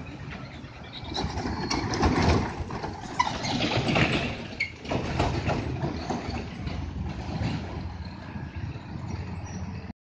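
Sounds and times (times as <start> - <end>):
truck diesel engine passing: 0.0 - 9.9
short high squeaks: 3.1 - 4.8.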